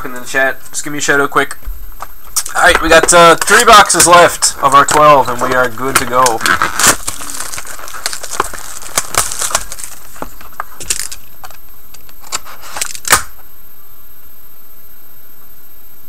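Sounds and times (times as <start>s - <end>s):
steady hiss: 0.0s - 16.0s
cardboard box handling: 4.8s - 11.2s.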